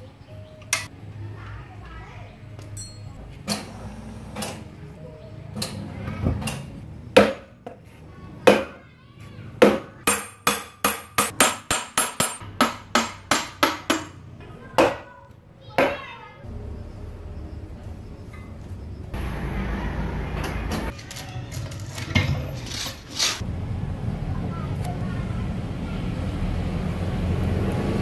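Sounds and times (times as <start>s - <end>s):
hammer striking steel chisel: 9.6s - 14.2s.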